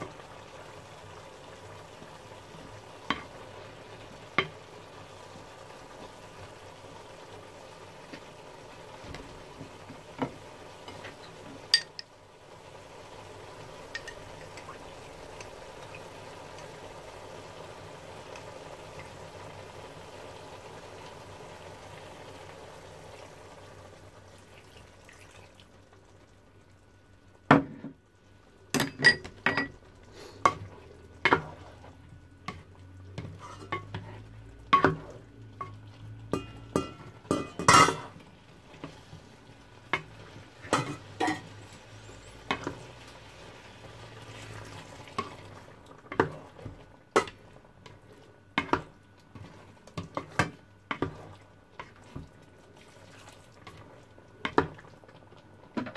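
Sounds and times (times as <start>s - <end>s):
spoon clinking on metal pan: 11.7s - 12.1s, 36.3s - 38.0s, 40.7s - 41.5s
simmering pan hissing: 30.0s - 31.1s, 40.4s - 45.4s.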